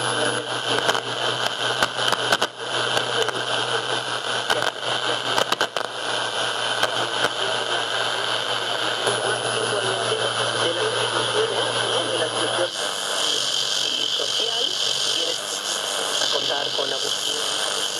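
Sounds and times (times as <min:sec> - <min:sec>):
radio static and hiss: 0:00.0 - 0:17.9
sharp crackles and clicks: 0:00.6 - 0:08.6.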